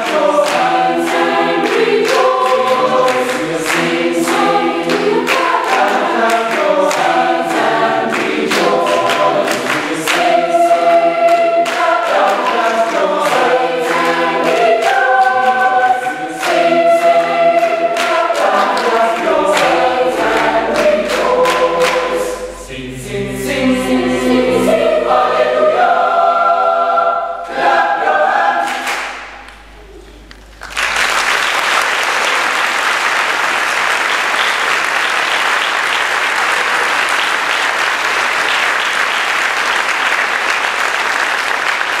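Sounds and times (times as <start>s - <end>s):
audience applause: 0.0s - 10.4s, 17.6s - 22.6s, 29.9s - 42.0s
boys' choir singing: 0.0s - 29.8s.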